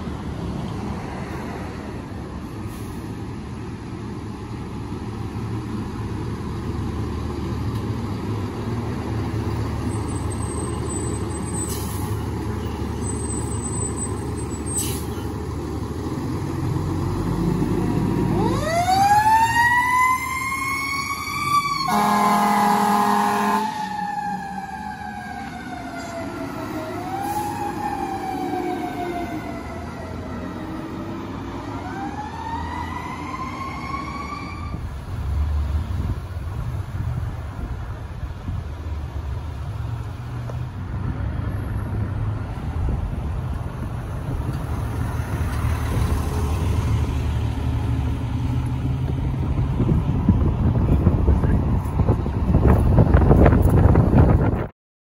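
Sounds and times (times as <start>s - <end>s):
diesel engine rumbling: 0.0s - 54.7s
siren wailing: 18.4s - 30.9s, 31.6s - 34.8s
fire engine horn blast: 21.8s - 24.5s.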